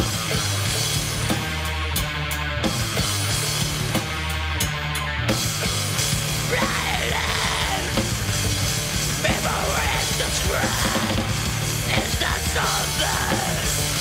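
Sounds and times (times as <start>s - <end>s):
metal band playing: 0.0s - 14.0s
harsh shouted vocals: 6.2s - 14.0s.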